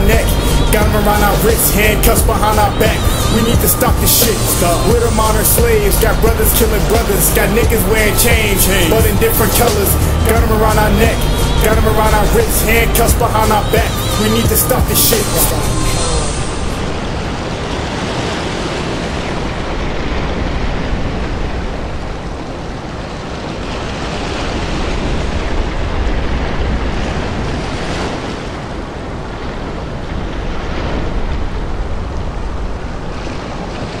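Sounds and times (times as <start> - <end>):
steady rushing noise: 0.0 - 34.0.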